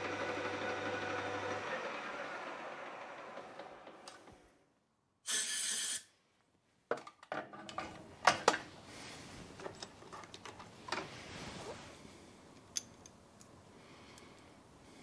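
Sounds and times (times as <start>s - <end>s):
lathe spindle coasting down: 0.0s - 4.4s.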